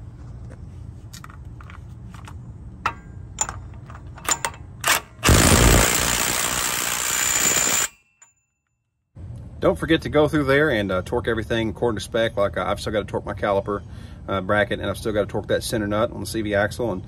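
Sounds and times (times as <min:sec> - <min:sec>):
impact wrench hammering: 0:02.9 - 0:08.3.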